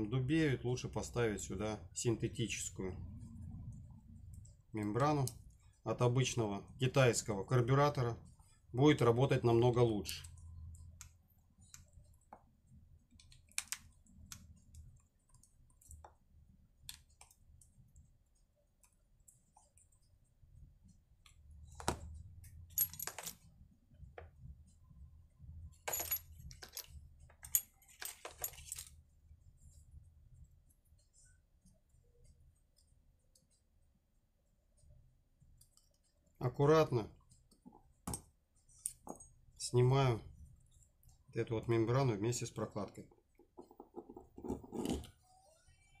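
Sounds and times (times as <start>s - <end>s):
small parts set down: 22.8s - 23.4s, 25.9s - 28.9s.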